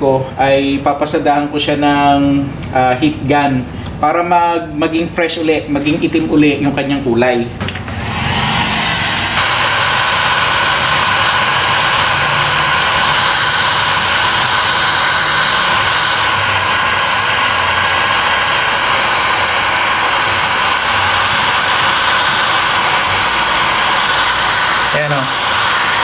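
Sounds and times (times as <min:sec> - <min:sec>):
heat gun blowing air: 0:07.7 - 0:26.0.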